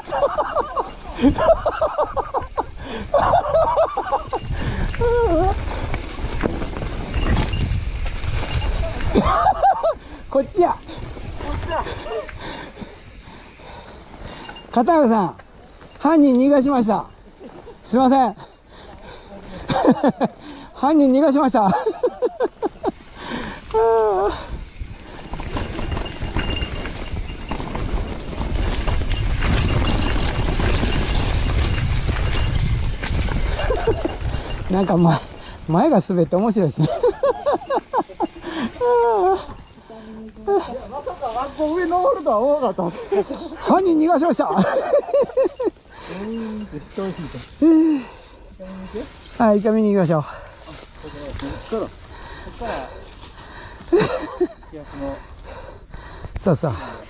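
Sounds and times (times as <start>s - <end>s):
bike tyres rumbling on dirt: 0.0s - 18.0s, 21.6s - 39.7s
wind noise: 0.0s - 20.8s, 21.7s - 57.0s
bike knocks and rattles: 5.9s - 9.7s, 24.6s - 35.0s
rider's wordless voice: 39.4s - 44.9s, 46.1s - 47.6s.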